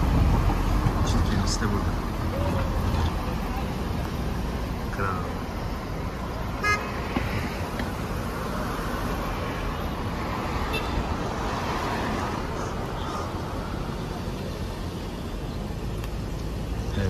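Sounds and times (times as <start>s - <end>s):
car road and engine noise: 0.0s - 17.0s
car horn toot: 6.6s - 7.0s, 10.7s - 11.0s.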